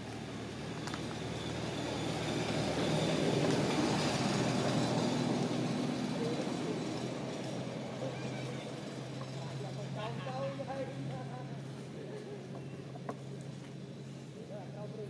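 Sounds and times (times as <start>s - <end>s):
vehicle passing: 0.0s - 11.7s.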